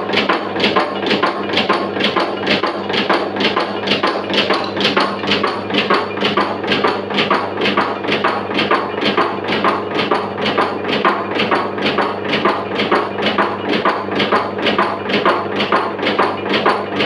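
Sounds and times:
machine low hum: 0:00.0 - 0:17.0.

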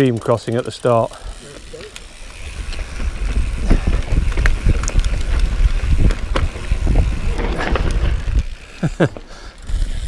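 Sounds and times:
bike frame rattling and knocking: 0:00.1 - 0:10.0
wind rushing across microphone: 0:02.4 - 0:08.6.

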